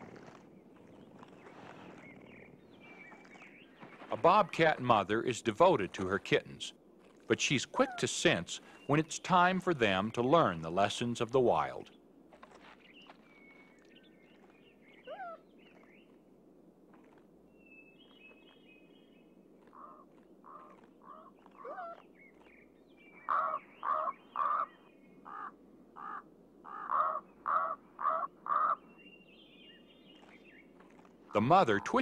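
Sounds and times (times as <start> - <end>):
small birds chirping: 0.1 - 5.3, 7.1 - 16.3, 16.9 - 32.0
crow cawing: 19.7 - 22.0, 23.2 - 28.9.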